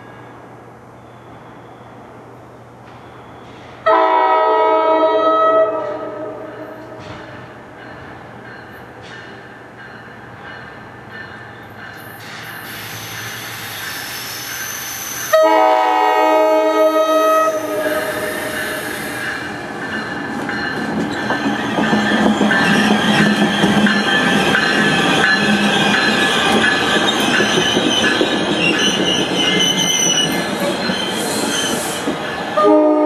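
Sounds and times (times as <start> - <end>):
train rumble and wheel noise: 0.0 - 33.0
train air horn chord: 3.9 - 7.0, 15.3 - 18.8, 32.6 - 33.0.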